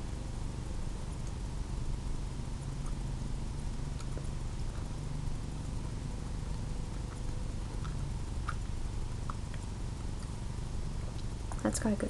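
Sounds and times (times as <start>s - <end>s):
steady low hum: 0.0s - 12.0s
wet chewing clicks: 2.5s - 11.7s.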